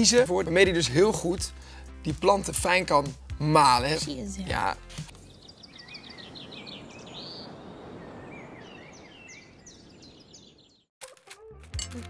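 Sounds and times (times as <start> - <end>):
small birds chirping: 4.1 - 10.9
sharp clinks: 11.8 - 12.0.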